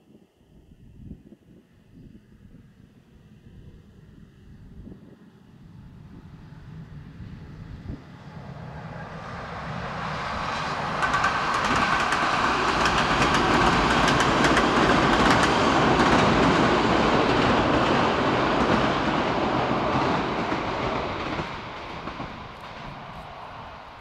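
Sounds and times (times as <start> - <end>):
train rumbling over viaduct: 3.4 - 24.0.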